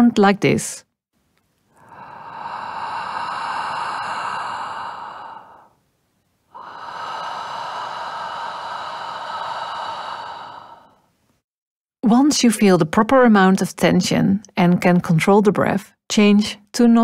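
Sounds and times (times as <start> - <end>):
long rushing breaths: 1.7 - 5.9, 6.5 - 11.2.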